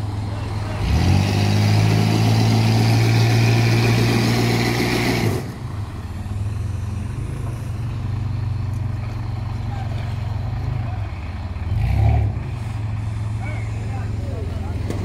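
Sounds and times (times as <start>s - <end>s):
engine revving under load: 0.0s - 8.1s, 11.6s - 13.2s.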